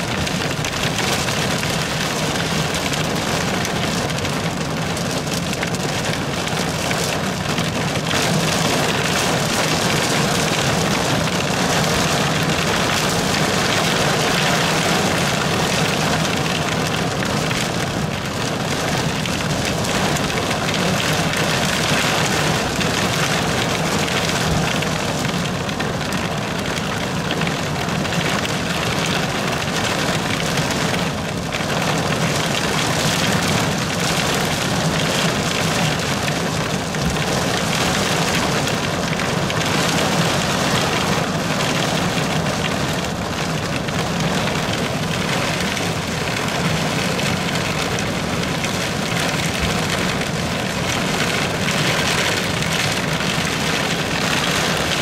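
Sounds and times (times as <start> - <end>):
heavy rain on car roof: 0.0 - 55.0.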